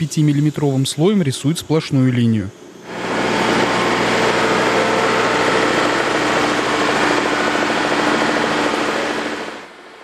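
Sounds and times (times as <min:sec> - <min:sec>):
low machine hum: 0:00.0 - 0:10.0
road-marking machine hissing: 0:02.8 - 0:09.7.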